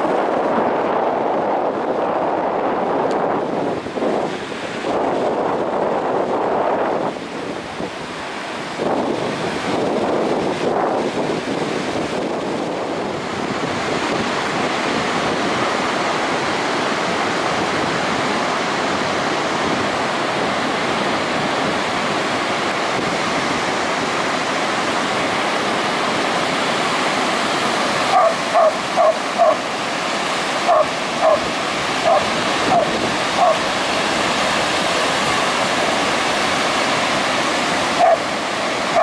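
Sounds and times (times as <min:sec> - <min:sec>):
ocean surf breaking: 0:00.0 - 0:39.0
dog barking: 0:28.1 - 0:29.6, 0:30.7 - 0:33.7, 0:38.0 - 0:38.3.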